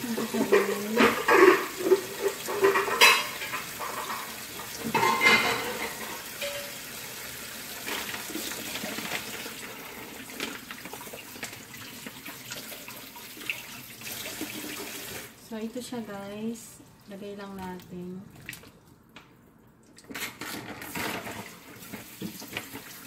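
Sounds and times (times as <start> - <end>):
dishes and utensils clattering: 0.0 - 6.9, 20.1 - 22.7.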